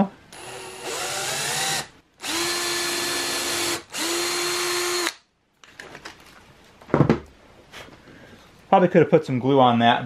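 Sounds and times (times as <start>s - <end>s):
cordless drill motor whining: 0.3s - 5.1s.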